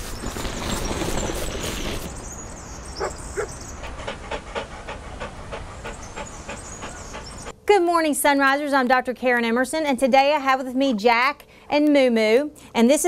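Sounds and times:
dog panting: 3.0s - 7.5s.

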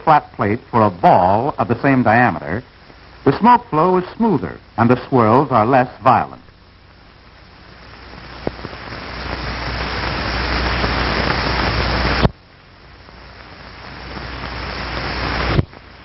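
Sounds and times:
rushing air hiss: 0.0s - 16.0s.

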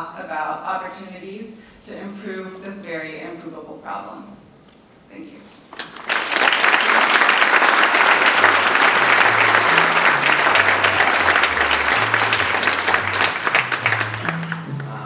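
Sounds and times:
audience applauding: 5.7s - 15.0s
low bass line music: 8.4s - 15.0s.

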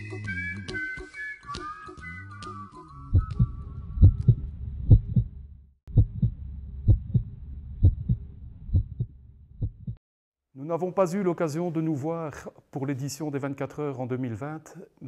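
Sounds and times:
whistled tone: 0.0s - 4.4s
heartbeat thumps: 3.1s - 10.0s
low hum: 3.1s - 10.0s.

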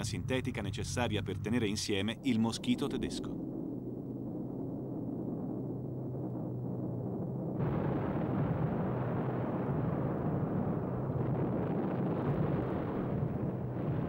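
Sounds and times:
rumble of explosions: 0.0s - 14.0s.

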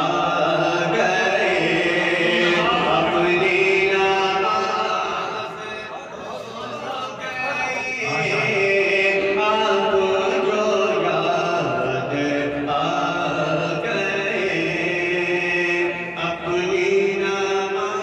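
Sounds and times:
man singing into a microphone: 0.0s - 18.0s.

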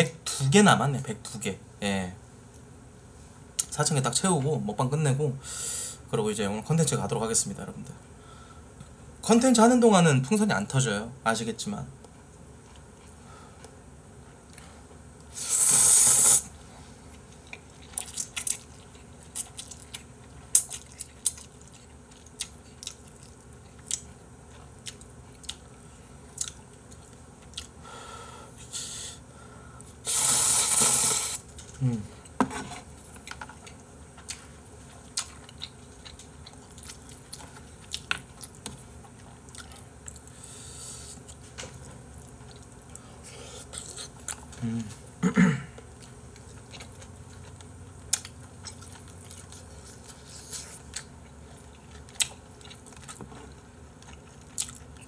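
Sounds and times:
man slurping noodles: 15.4s - 16.4s, 30.1s - 31.4s
chewing: 17.1s - 25.7s, 26.3s - 27.8s, 33.0s - 40.4s, 41.2s - 45.0s, 46.0s - 55.0s.

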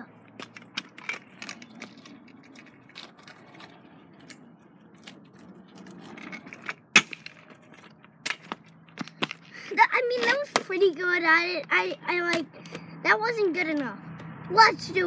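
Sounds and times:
scooter landing clack on pavement: 5.0s - 11.0s.

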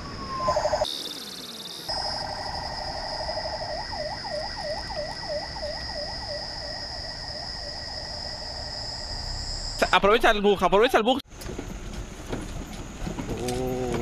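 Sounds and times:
ambulance siren yelp and wail: 0.0s - 0.9s, 1.9s - 8.5s.

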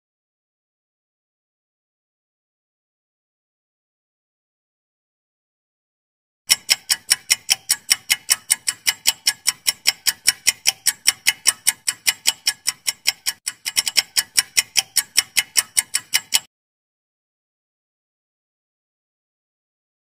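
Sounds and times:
timer ticking: 6.5s - 16.5s.

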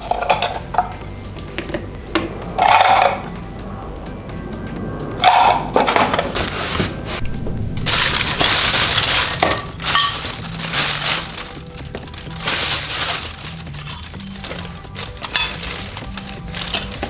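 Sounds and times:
background music: 0.0s - 17.0s
plastic bag crinkling: 7.8s - 17.0s.

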